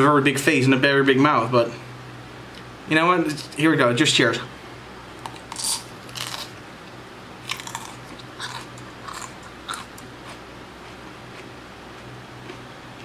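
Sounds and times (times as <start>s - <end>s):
pepper crunching: 5.2s - 6.5s, 7.4s - 11.5s
chewing: 7.5s - 11.5s.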